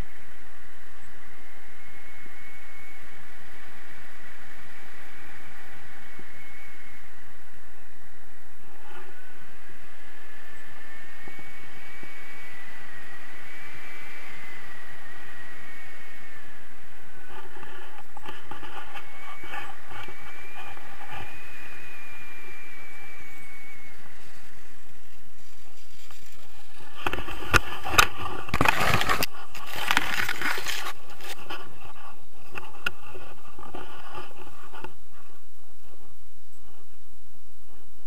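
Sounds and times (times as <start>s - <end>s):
thin whistling tone: 0.0s - 32.1s
wind rushing over microphone: 0.0s - 38.0s
knocks and scraping on grass: 25.3s - 35.4s.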